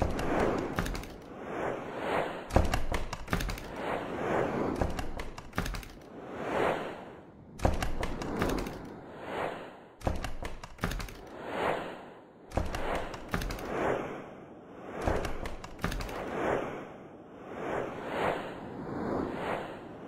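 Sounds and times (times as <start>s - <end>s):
sharp percussive clicks and hits: 2.5s - 3.7s, 10.0s - 11.3s.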